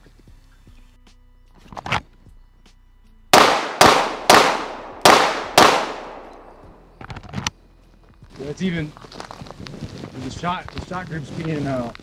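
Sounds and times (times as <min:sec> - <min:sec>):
pistol shots with echo: 0:03.4 - 0:06.8.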